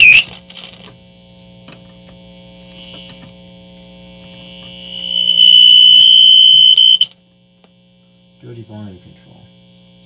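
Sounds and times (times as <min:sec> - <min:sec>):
radio high-pitched squeal: 0:00.0 - 0:00.3, 0:04.8 - 0:07.1
low hum: 0:00.0 - 0:08.4.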